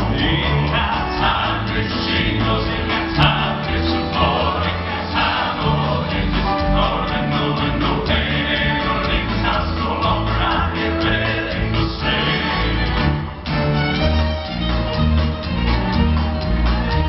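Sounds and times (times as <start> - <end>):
male vocal group singing in harmony: 0.0 - 13.0
keyboard guitar and bass: 0.0 - 17.0.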